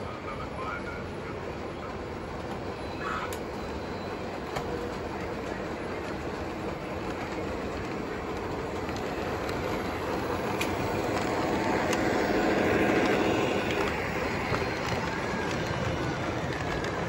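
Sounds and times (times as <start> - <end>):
model train motor and wheels rumbling: 0.0 - 17.0.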